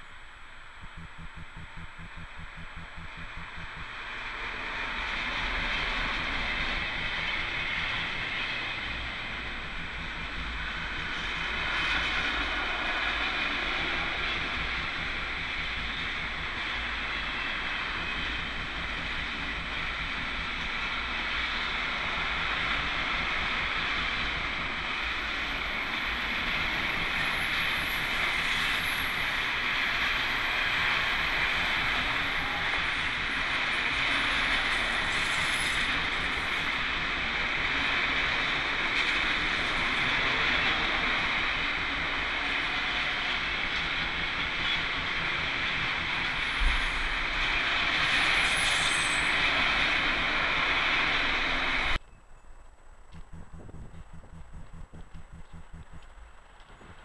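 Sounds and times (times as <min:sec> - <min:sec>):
faint high whine: 0:00.0 - 0:37.6
freight train wheels clattering on rails: 0:00.9 - 0:52.0.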